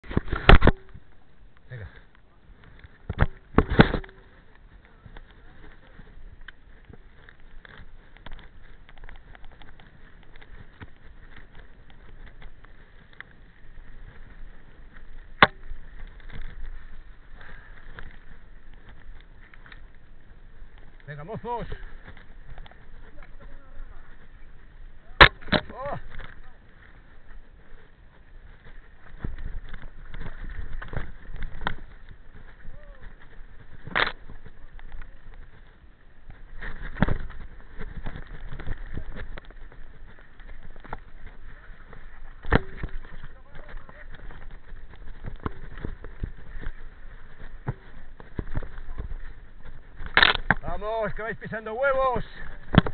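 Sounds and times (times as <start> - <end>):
bike rattling: 0.0 - 52.9
tyres rumbling on dirt trail: 0.0 - 52.9.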